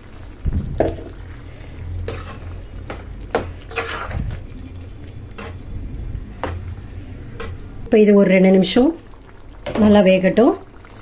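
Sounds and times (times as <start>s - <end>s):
low steady hum: 0.0s - 11.0s
ladle clinking and scraping a pan: 2.0s - 4.4s.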